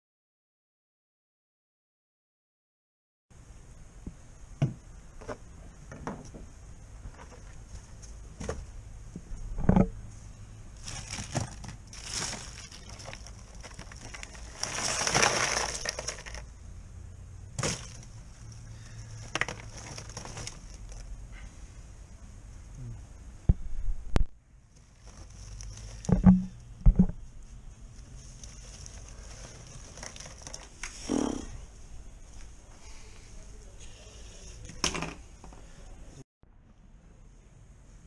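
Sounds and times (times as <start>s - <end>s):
ice cubes crunching and clinking: 10.8s - 16.5s, 19.1s - 21.0s, 28.5s - 30.7s.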